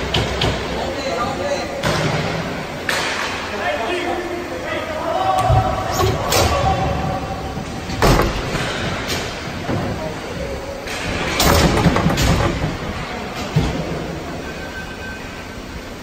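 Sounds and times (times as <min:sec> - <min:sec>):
pucks and sticks hitting boards: 0:00.0 - 0:00.8, 0:01.8 - 0:03.5, 0:05.4 - 0:10.0, 0:10.8 - 0:14.1
noisy arena background: 0:00.0 - 0:16.0.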